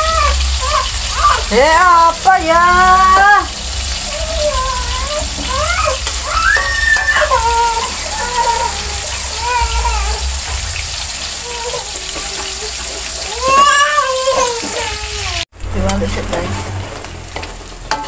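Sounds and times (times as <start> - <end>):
food sizzling in oil: 0.0 - 18.0
high-pitched gliding voice: 15.6 - 17.4.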